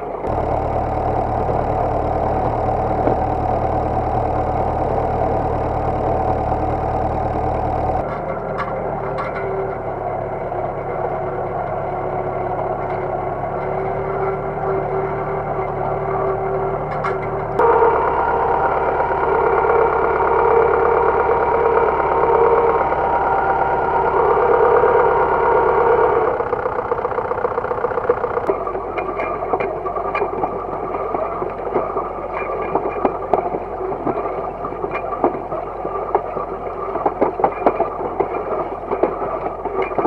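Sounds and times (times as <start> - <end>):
tractor diesel engine: 0.0 - 40.0
harrow discs cutting through soil: 0.2 - 40.0.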